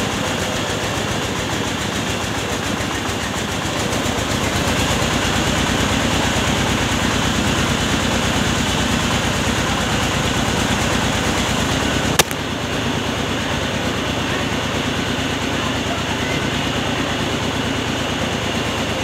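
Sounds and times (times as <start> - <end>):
rice mill machinery droning: 0.0 - 19.0
sharp click: 12.2 - 12.4.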